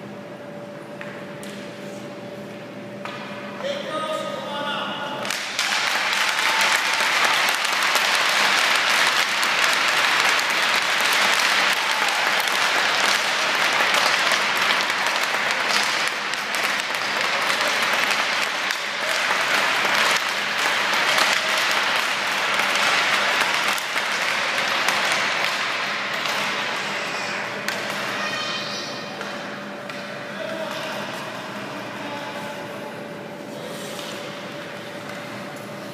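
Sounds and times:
crowd applauding: 5.3s - 26.7s.

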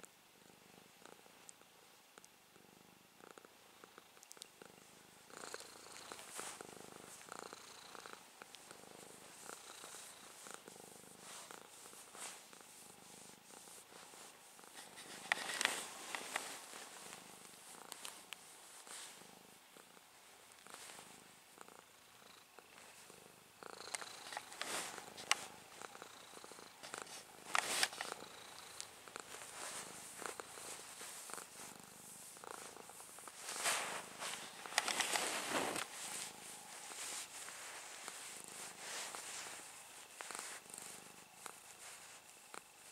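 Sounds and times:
cat purring: 0.0s - 42.9s
fingers rubbing fur: 5.3s - 19.2s, 23.7s - 42.6s.

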